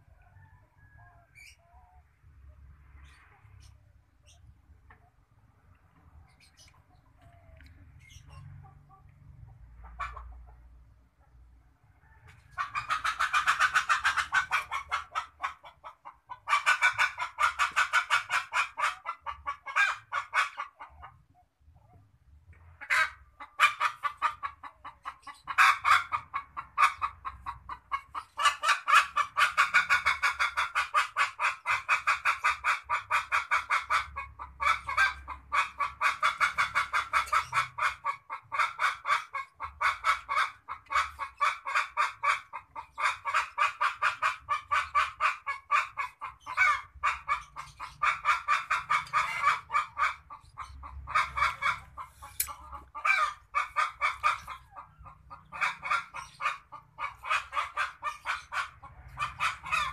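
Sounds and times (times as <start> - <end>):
otters chirping: 3.0 - 9.1.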